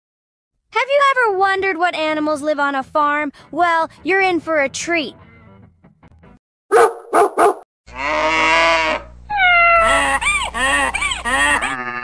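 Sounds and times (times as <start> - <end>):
dog barks: 6.7 - 7.6
held animal call: 7.9 - 12.0
wavering animal calls: 7.9 - 12.0.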